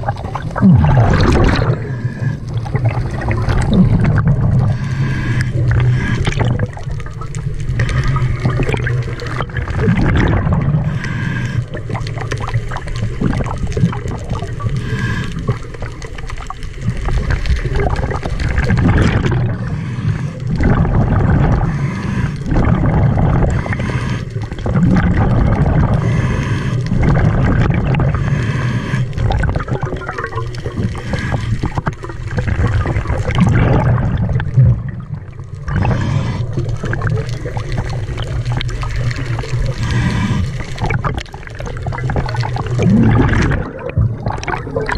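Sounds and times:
exhaled bubbles gurgling: 0:00.0 - 0:44.9
diver breathing through regulator: 0:00.5 - 0:07.0, 0:10.6 - 0:12.3, 0:14.6 - 0:15.9, 0:19.1 - 0:29.5, 0:30.8 - 0:31.9, 0:35.6 - 0:38.2, 0:39.0 - 0:41.7.

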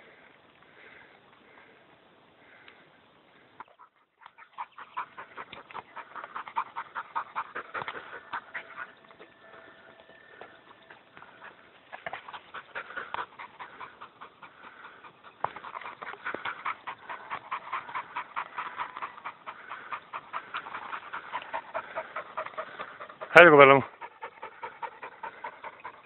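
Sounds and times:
dog panting fast: 0:03.7 - 0:26.0.

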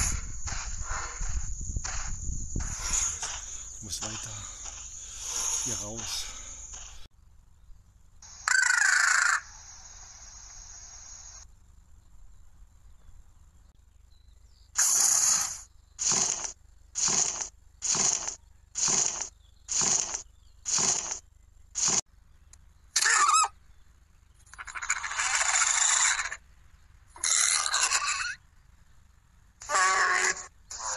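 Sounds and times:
creature rasping hisses: 0:05.1 - 0:06.1, 0:14.8 - 0:15.6
creature shrill squeal: 0:08.4 - 0:09.5, 0:23.0 - 0:23.5, 0:24.6 - 0:26.4, 0:27.2 - 0:28.4, 0:29.6 - 0:30.9.

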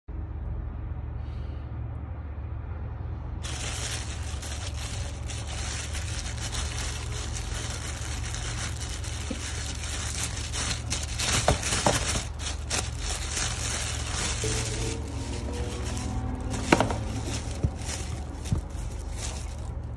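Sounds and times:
plastic bag crinkling: 0:03.4 - 0:19.9
plastic bag snaps: 0:16.5 - 0:18.7.

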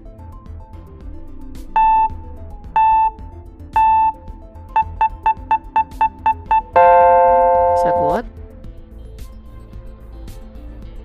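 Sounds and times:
soft background music: 0:00.0 - 0:11.0
countdown timer beeps: 0:01.8 - 0:03.2, 0:03.8 - 0:08.2.

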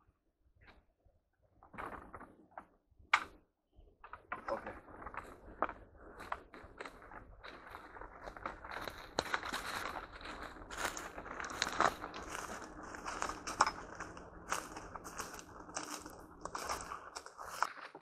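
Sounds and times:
footsteps crunching dry leaves: 0:06.3 - 0:18.0.

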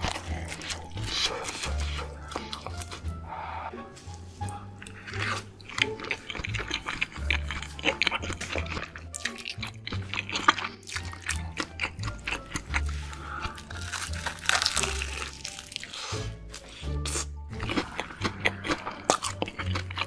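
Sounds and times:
wet chewing: 0:00.0 - 0:03.2, 0:04.1 - 0:20.0
crunching bites: 0:04.8 - 0:20.0.

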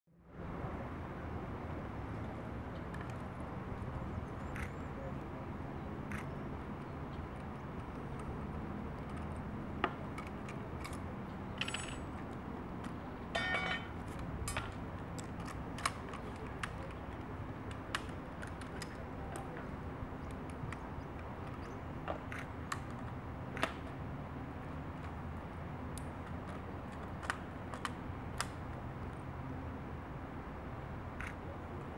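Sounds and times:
metallic clicks of rifle parts: 0:07.4 - 0:19.6, 0:26.0 - 0:29.2
metal rattles: 0:11.6 - 0:12.2, 0:13.4 - 0:14.0.

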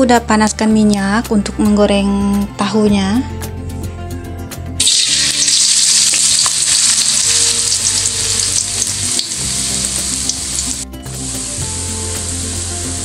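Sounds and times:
tofu sizzling in hot oil: 0:04.8 - 0:13.0.

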